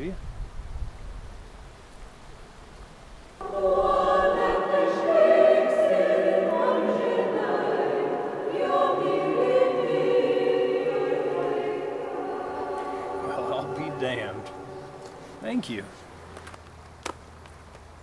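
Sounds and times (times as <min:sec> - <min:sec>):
choir singing a held chord: 0:03.4 - 0:15.9.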